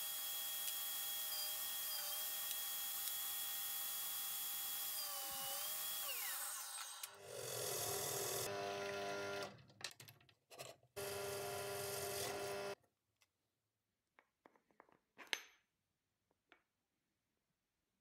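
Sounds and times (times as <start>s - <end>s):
drill press whine: 0.0s - 9.5s, 11.0s - 12.8s.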